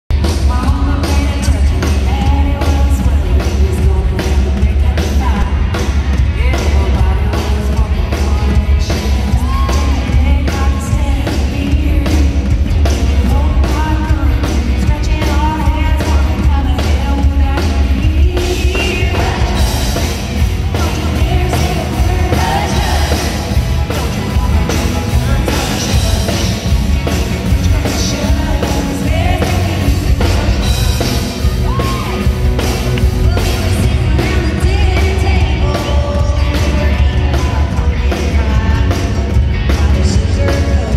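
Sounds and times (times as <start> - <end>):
heavy bass: 0.0 - 40.9
country band playing: 0.1 - 40.9
steady drum beat: 0.1 - 40.9
women singing: 13.2 - 23.5, 27.6 - 30.8, 33.2 - 38.9.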